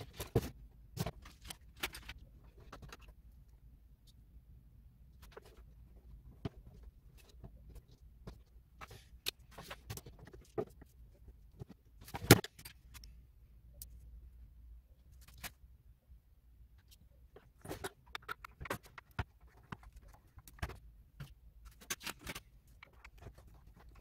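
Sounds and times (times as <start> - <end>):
hands handling plastic casing: 16.8 - 24.0.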